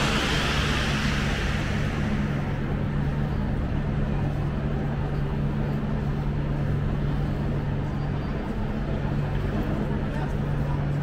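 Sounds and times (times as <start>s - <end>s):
low hum of station hall: 0.0s - 11.0s
faint murmur of voices: 3.1s - 11.0s.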